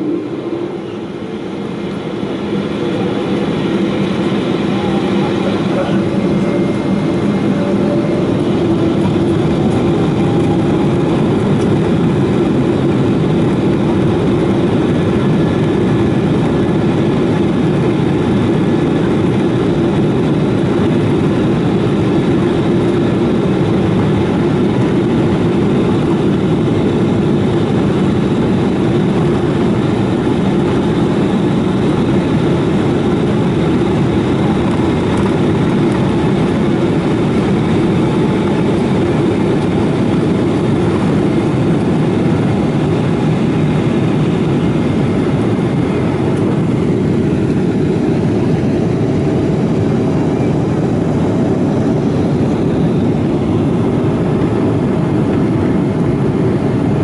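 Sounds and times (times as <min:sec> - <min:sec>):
jet engines humming in cabin: 0:00.0 - 0:57.0.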